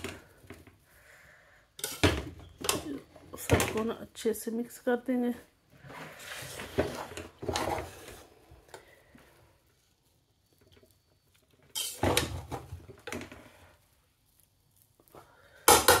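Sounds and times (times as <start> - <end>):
spatula scraping rice in pot: 1.8 - 2.9, 5.8 - 8.4, 11.7 - 12.4.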